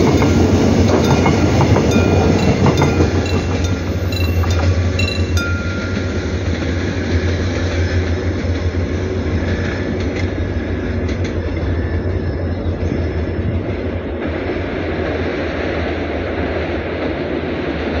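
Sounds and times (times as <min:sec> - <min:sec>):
train rumbling past: 0:00.0 - 0:18.0.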